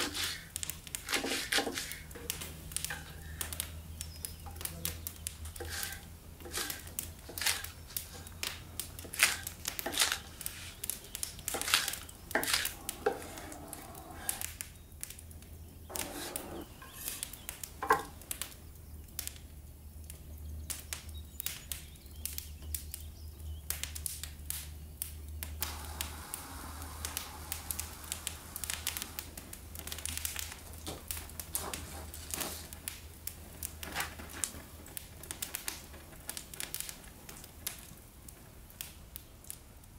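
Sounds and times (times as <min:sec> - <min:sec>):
steady low hum: 0:23.1 - 0:36.6.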